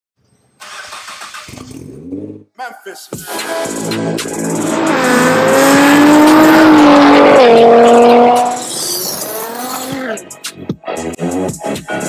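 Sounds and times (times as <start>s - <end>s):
car engine accelerating hard: 3.8s - 10.2s.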